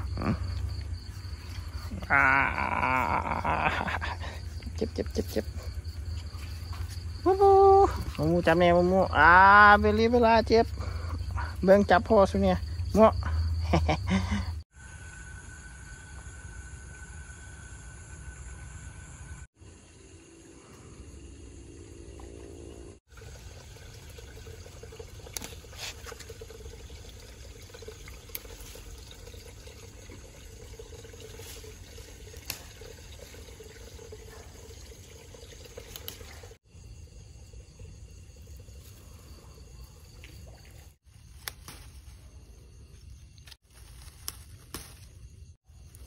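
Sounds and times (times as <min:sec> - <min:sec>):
rushing trickling water: 0:23.1 - 0:41.0.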